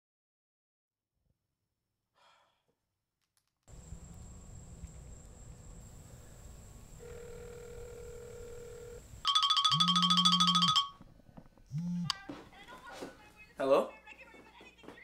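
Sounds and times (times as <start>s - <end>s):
faint low hum: 3.7s - 13.5s
phone vibrate motor buzz: 7.0s - 10.9s, 11.7s - 12.1s
fast-pulsing electronic ringtone: 7.1s - 11.0s.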